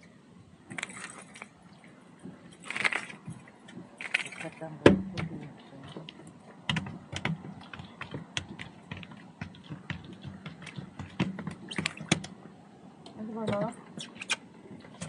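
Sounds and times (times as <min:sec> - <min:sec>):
fishing tackle clicking and tapping: 0:05.9 - 0:12.4.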